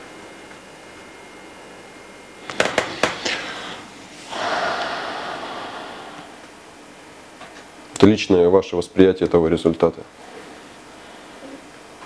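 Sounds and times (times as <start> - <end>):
man sighing: 3.0 - 6.4.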